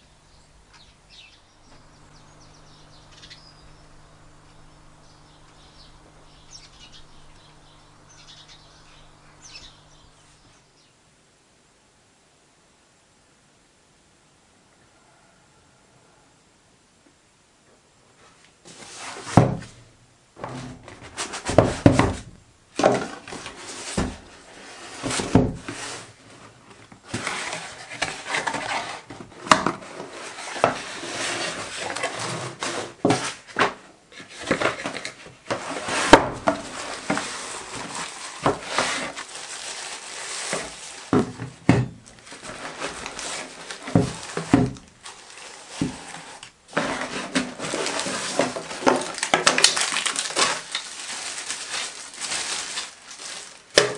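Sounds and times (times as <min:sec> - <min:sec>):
paper wrapping rustling: 0:01.6 - 0:10.5, 0:20.4 - 0:53.9
knocks and thuds: 0:20.4 - 0:23.0
cardboard box knocking and sliding: 0:20.4 - 0:24.3, 0:40.5 - 0:44.9.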